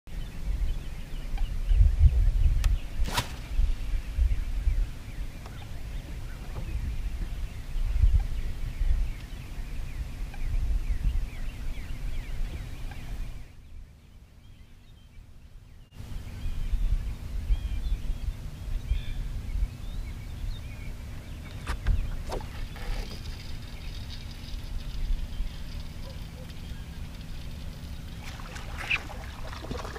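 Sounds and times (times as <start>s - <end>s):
birds chirping: 0.1s - 29.9s
wind rumble on microphone: 0.1s - 29.9s.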